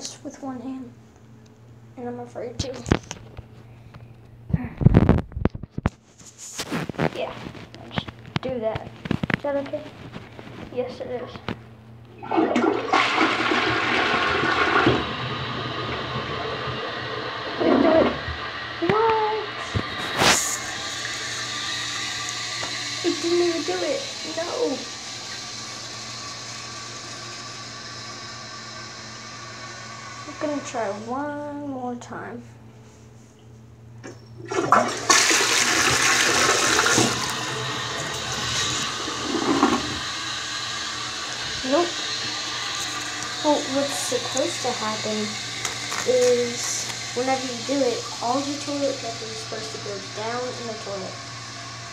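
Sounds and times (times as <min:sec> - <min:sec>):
toilet flushing: 0:12.1 - 0:31.7, 0:34.0 - 0:51.9.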